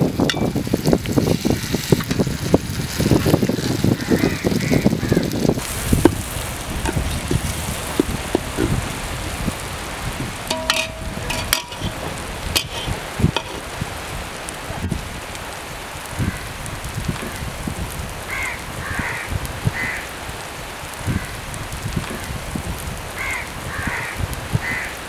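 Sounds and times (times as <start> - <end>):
steady sizzle: 0.0 - 25.0
metal spoon scraping pot: 10.5 - 13.7.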